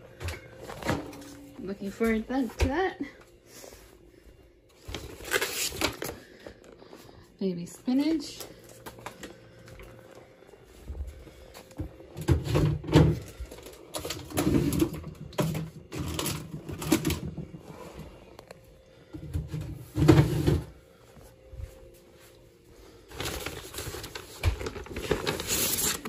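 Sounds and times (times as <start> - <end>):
knocks and bumps in refrigerator: 12.2 - 13.3.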